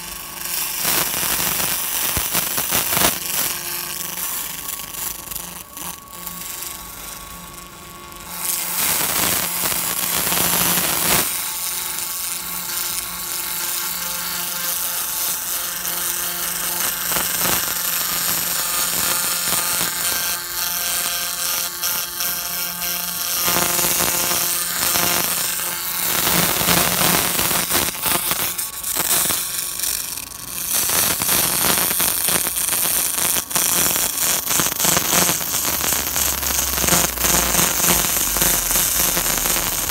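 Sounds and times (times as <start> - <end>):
rapid laser pulse crackle: 0.4 - 5.6, 8.3 - 12.0, 14.4 - 39.9.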